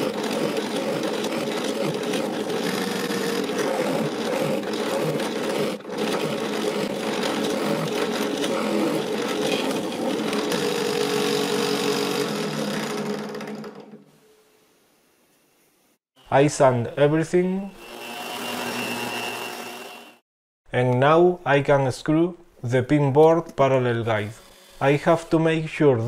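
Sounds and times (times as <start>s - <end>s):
drill bit cutting wood: 0.0s - 13.6s, 17.8s - 20.2s
drill press motor hum: 0.0s - 14.0s, 17.8s - 20.2s.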